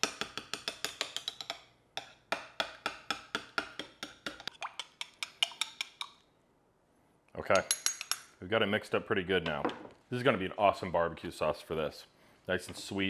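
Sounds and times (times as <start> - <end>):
spoon clinking against mug: 4.4 - 6.2.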